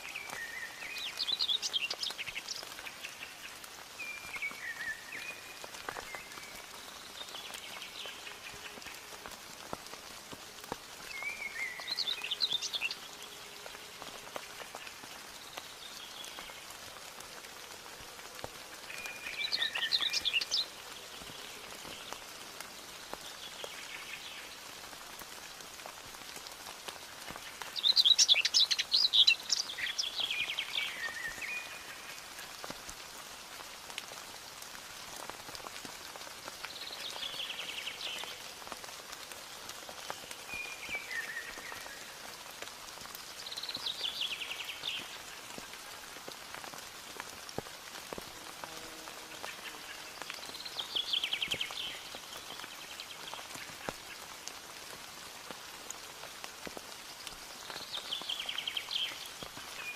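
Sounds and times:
songbirds singing trills: 0:00.0 - 0:08.9, 0:11.0 - 0:13.4, 0:18.8 - 0:22.2, 0:27.4 - 0:32.1, 0:49.5 - 0:53.6
rain pattering: 0:00.0 - 0:59.9.

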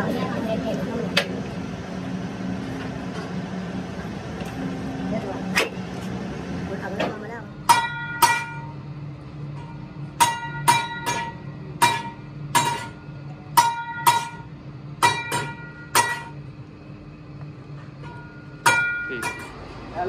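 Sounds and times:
bending machine humming: 0:00.0 - 0:20.0
ringing metal clangs: 0:07.7 - 0:08.8, 0:09.6 - 0:16.4, 0:18.0 - 0:19.6.

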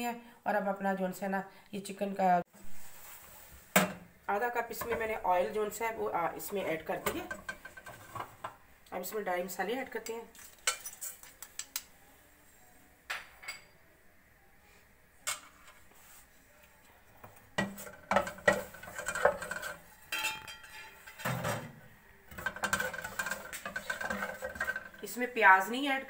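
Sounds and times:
spatula scraping pot bottom: 0:06.3 - 0:08.6, 0:17.6 - 0:21.7, 0:22.3 - 0:25.3
spoon clinking on metal pot: 0:17.7 - 0:21.2.

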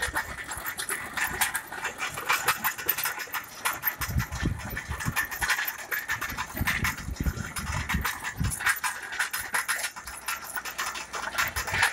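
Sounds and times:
trencher chain clattering: 0:00.0 - 0:11.9.

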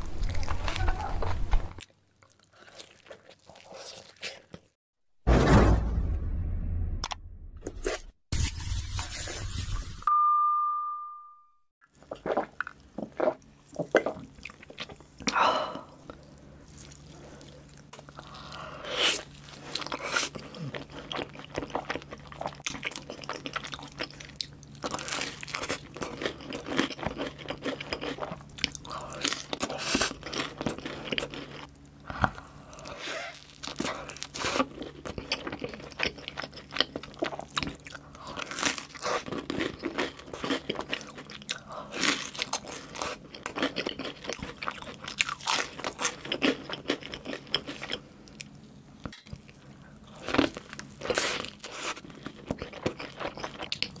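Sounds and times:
crunchy food chewing: 0:00.0 - 0:04.8, 0:16.0 - 0:54.0.

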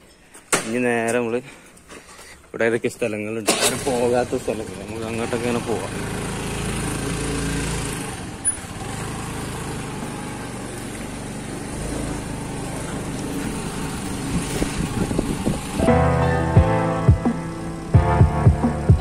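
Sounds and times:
motorcycle engine running: 0:03.8 - 0:16.0.

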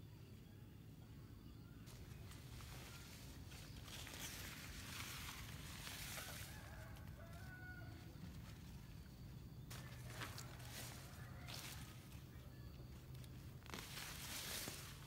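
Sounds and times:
tarp rustling through grass: 0:01.9 - 0:07.6, 0:09.7 - 0:15.0.

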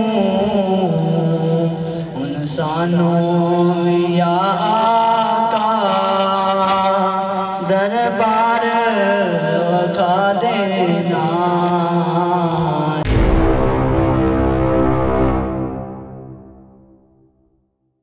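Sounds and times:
man chanting melodically: 0:00.0 - 0:13.2.

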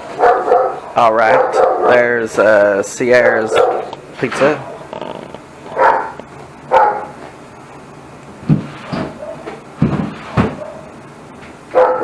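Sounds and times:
dog barking: 0:00.1 - 0:02.2, 0:03.4 - 0:04.9, 0:05.7 - 0:07.2, 0:09.2 - 0:09.6, 0:10.4 - 0:11.0, 0:11.7 - 0:12.0.

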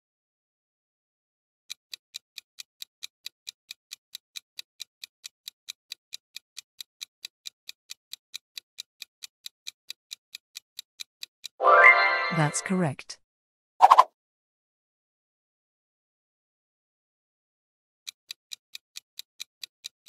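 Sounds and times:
fast clock ticking: 0:01.7 - 0:11.6, 0:18.1 - 0:20.0.

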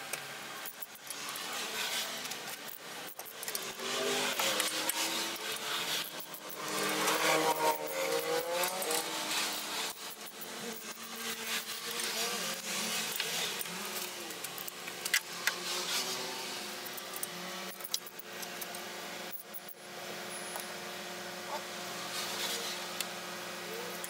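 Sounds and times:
sharp metallic clicks: 0:16.8 - 0:19.8.

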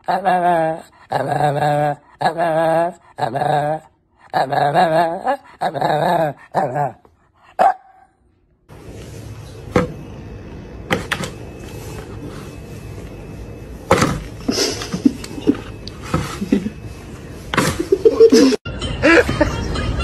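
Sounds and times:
dog yip: 0:07.6 - 0:08.1.

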